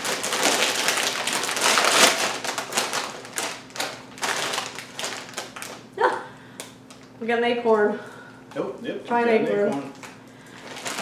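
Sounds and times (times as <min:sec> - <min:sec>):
plastic chip bag crinkling: 0:00.0 - 0:05.9, 0:09.5 - 0:11.0.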